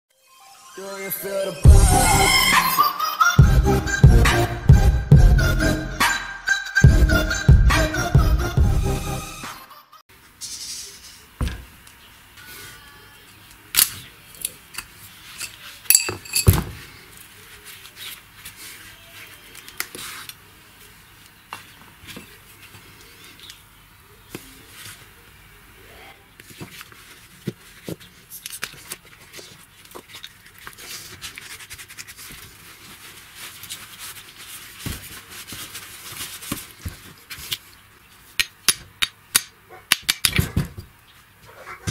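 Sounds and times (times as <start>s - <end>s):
metallic clinks and knocks of tools: 14.7s - 16.8s.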